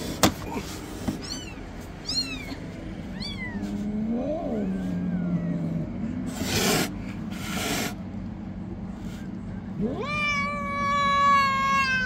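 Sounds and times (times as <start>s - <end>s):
kittens mewing: 0.0s - 8.1s, 9.0s - 12.0s
cat growling yowl: 3.2s - 8.0s, 9.6s - 12.0s
cat hissing: 6.1s - 8.1s.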